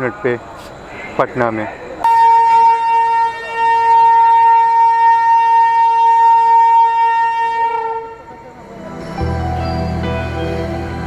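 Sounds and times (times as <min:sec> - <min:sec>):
train horn long blast: 0:02.0 - 0:08.4.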